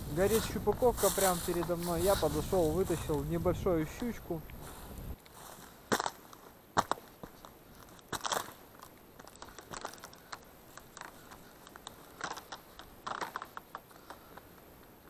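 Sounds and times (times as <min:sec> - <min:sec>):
boots crunching on ice: 0:00.0 - 0:08.6
ice cracking ticks: 0:00.1 - 0:04.6, 0:07.8 - 0:14.6.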